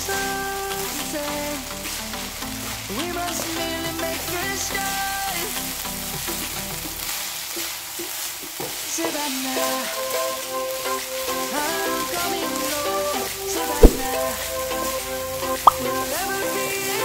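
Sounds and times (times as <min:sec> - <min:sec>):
background music: 0:00.0 - 0:07.2, 0:09.0 - 0:17.0
rice sizzling in a frying pan: 0:00.0 - 0:17.0
spatula stirring in a pan: 0:06.1 - 0:11.8.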